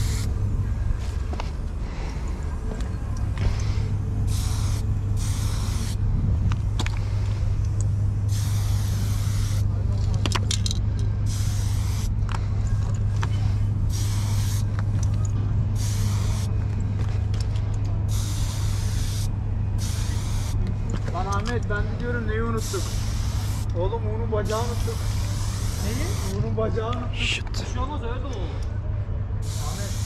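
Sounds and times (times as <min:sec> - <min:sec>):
spray paint can spraying: 0:00.0 - 0:00.3, 0:04.3 - 0:06.0, 0:08.3 - 0:09.7, 0:11.2 - 0:12.1, 0:13.9 - 0:15.1, 0:15.8 - 0:16.5, 0:18.1 - 0:20.6, 0:22.6 - 0:23.7, 0:24.4 - 0:26.4, 0:29.4 - 0:30.0
steady low hum: 0:00.0 - 0:30.0.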